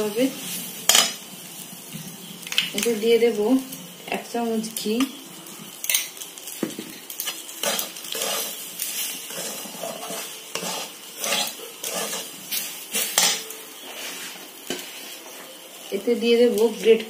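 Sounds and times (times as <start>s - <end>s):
light sizzle: 0.0s - 17.0s
metal spatula scraping a pan: 7.0s - 15.5s.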